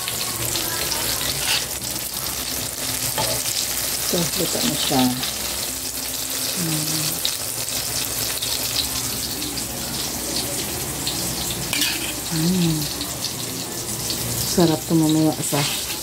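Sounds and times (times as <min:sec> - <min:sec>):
food sizzling in oil: 0:00.0 - 0:16.0
metal tongs clinking on plate: 0:01.3 - 0:01.8, 0:03.2 - 0:03.5, 0:11.7 - 0:12.3.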